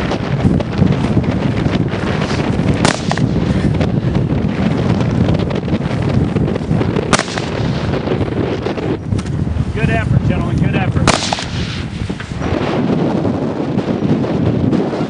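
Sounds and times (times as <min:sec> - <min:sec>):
wind buffeting microphone: 0:00.0 - 0:15.0
sharp bangs: 0:02.7 - 0:03.8, 0:07.0 - 0:08.8, 0:11.0 - 0:12.9.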